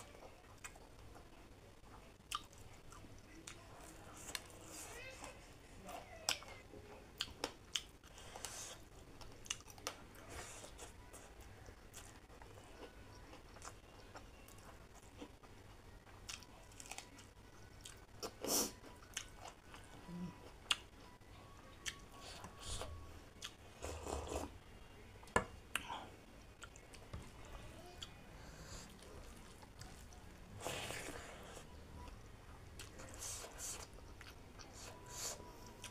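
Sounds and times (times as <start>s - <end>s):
person chewing food: 2.0s - 3.6s, 7.2s - 21.1s, 21.7s - 24.6s
food crunching: 7.2s - 20.9s.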